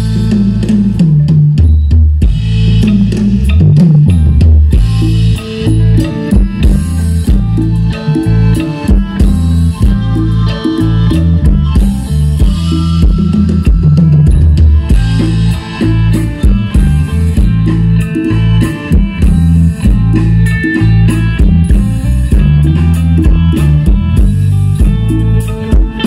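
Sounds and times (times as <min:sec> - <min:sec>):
bass line: 0:00.0 - 0:26.0
drum kit beat: 0:00.0 - 0:26.0
guitar: 0:00.0 - 0:26.0.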